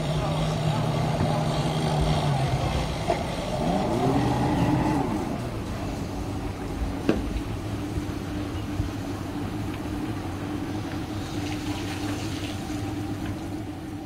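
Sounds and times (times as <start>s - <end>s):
outboard motors idling: 0.0s - 14.0s
water around hull: 0.0s - 14.0s.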